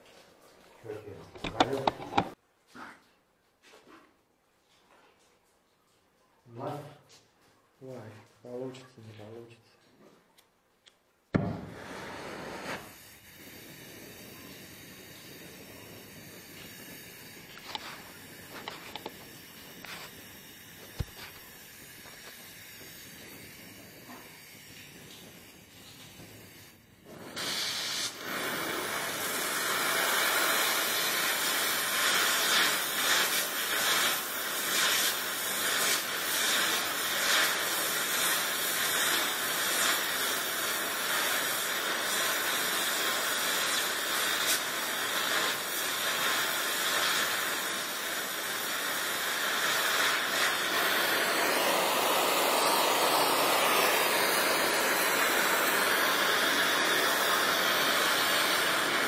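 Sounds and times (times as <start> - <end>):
gas torch flame hissing: 0.9 - 2.4, 11.3 - 59.0
small crackles and pops: 14.0 - 51.6.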